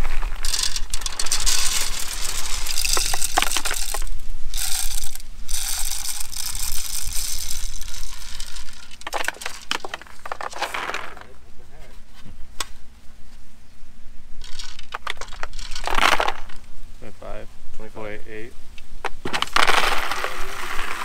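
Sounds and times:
dry corn kernels pouring: 0:00.0 - 0:11.2, 0:19.4 - 0:21.0.

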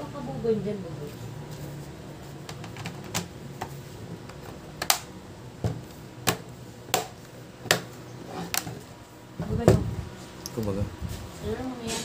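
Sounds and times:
plastic clips snapping into place: 0:04.3 - 0:05.1.

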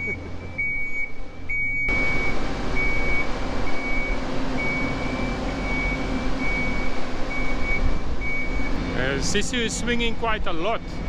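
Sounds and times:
warning beeper: 0:00.0 - 0:09.8
diesel engine rumbling: 0:00.0 - 0:11.0.

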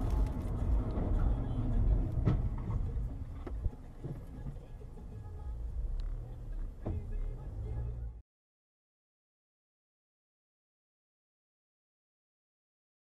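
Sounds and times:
car engine and road rumble: 0:00.0 - 0:08.2.

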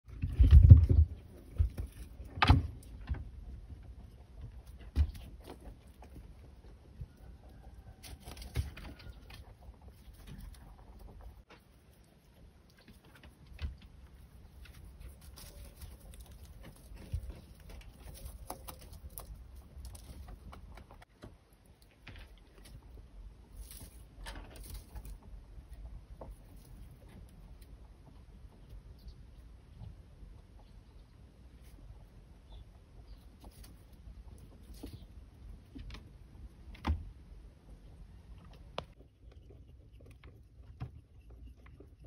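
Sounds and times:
rabbits rustling in straw: 0:00.1 - 0:20.9, 0:21.9 - 0:28.6, 0:31.5 - 0:36.4.

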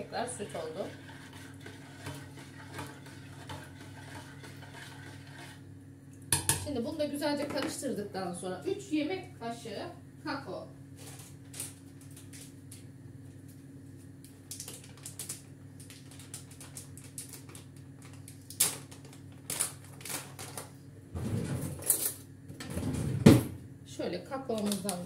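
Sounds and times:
steady low hum: 0:00.0 - 0:25.0
plastic wrapper crackling: 0:14.5 - 0:20.6.

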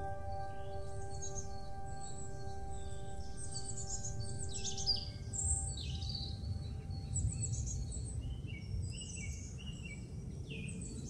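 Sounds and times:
birds singing and chirping: 0:00.0 - 0:08.5.

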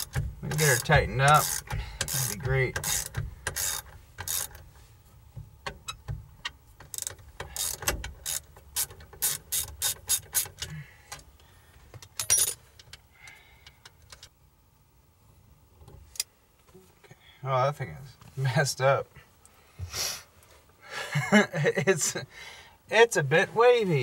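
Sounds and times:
ratchet wrench clicking: 0:00.0 - 0:04.6, 0:05.8 - 0:10.7.

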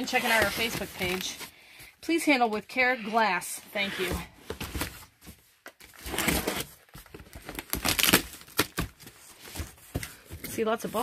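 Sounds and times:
cardboard flaps tearing and rustling: 0:05.9 - 0:10.1
box cutter slitting tape: 0:07.6 - 0:08.9.

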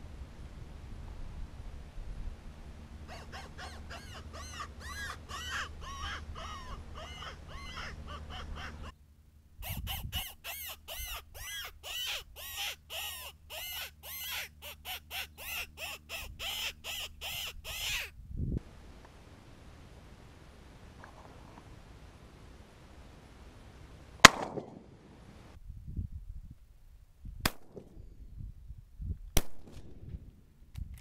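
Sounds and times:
electronic squealing distress cry: 0:09.6 - 0:18.1.

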